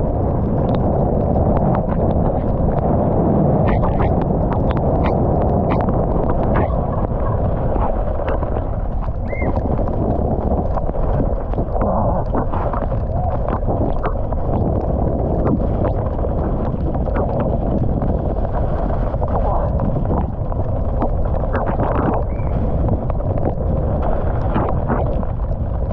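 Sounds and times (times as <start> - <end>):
wind and tyre noise: 0.0 - 25.9.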